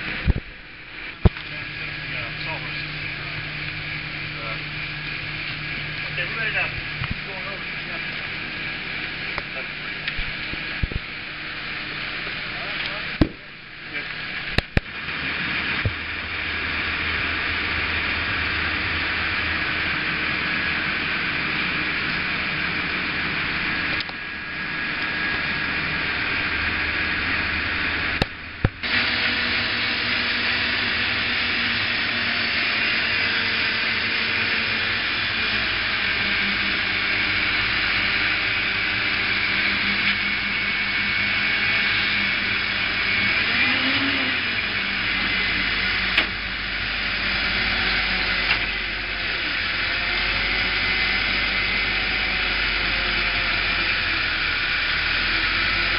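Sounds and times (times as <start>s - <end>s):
crane engine droning: 0.0s - 55.9s.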